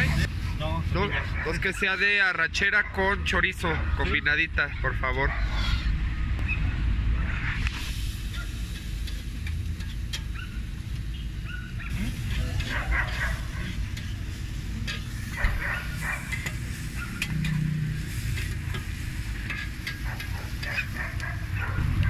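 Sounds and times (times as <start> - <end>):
metal spatulas scraping on griddle: 7.3 - 11.0, 11.8 - 22.0
meat sizzling: 7.6 - 22.0.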